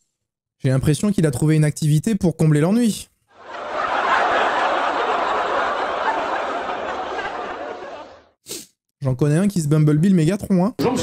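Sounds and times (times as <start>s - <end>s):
crowd laughing: 3.4s - 8.4s.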